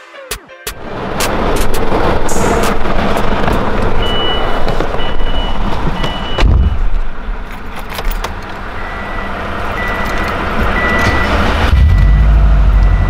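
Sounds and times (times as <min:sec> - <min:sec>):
car door shutting: 0:05.8 - 0:06.9.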